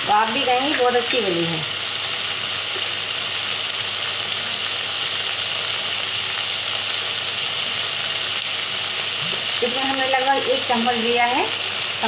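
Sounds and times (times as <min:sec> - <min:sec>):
masala sizzling in a pan: 0:00.0 - 0:12.0.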